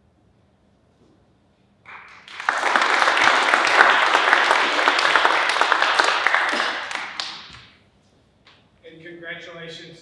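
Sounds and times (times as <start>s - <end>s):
audience applauding: 1.9s - 7.7s.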